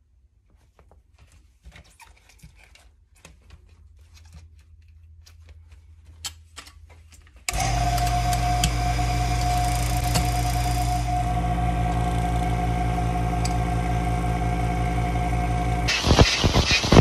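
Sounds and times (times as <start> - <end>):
motor humming: 7.5 - 17.0
plastic sheet rustling: 15.9 - 17.0.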